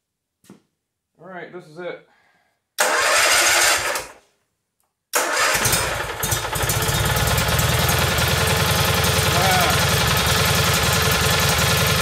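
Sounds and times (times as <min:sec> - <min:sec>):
electric starter cranking: 0:02.8 - 0:04.2, 0:05.2 - 0:12.0
engine running steadily: 0:05.8 - 0:12.0.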